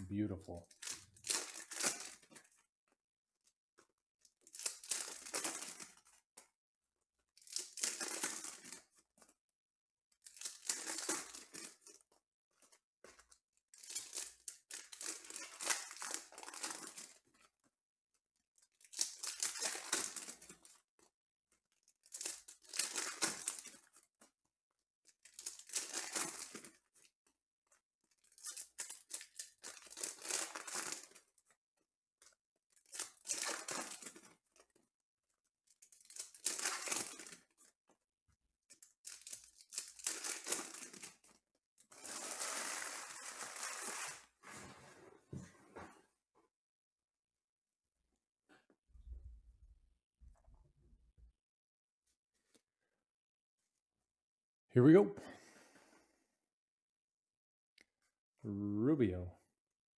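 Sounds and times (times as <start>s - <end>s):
foil wrappers tearing and crinkling: 0.7s - 2.5s, 4.4s - 6.2s, 7.4s - 8.9s, 10.2s - 12.0s, 13.6s - 17.2s, 18.7s - 20.8s, 22.0s - 23.9s, 25.2s - 26.8s, 28.2s - 31.2s, 32.8s - 34.4s, 35.8s - 37.5s, 38.8s - 44.4s.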